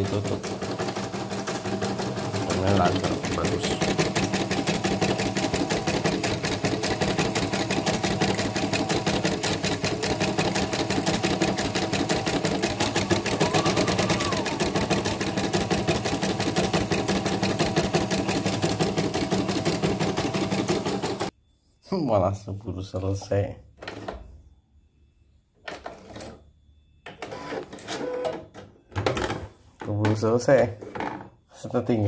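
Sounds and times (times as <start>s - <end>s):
embroidery machine stitching: 0.0s - 21.3s, 27.2s - 28.4s.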